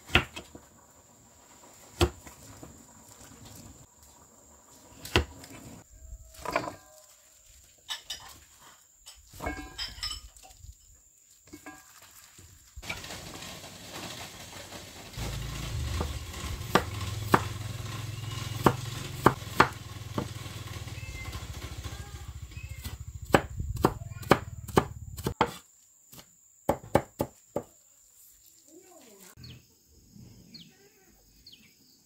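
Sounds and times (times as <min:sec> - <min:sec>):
cleaver chopping on wooden board: 0:18.6 - 0:20.4, 0:22.8 - 0:27.7.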